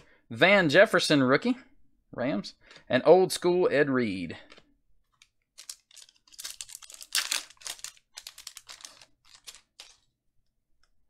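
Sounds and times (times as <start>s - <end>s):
foil wrapper crinkling: 5.6s - 10.1s.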